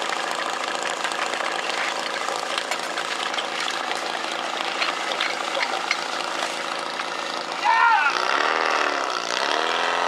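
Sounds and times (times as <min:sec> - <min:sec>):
pump engine running: 0:00.0 - 0:10.0
hose couplings clattering: 0:01.7 - 0:06.6.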